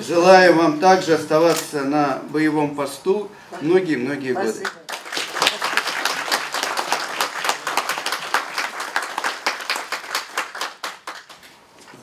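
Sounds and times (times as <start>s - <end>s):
small group applauding: 4.6s - 12.0s.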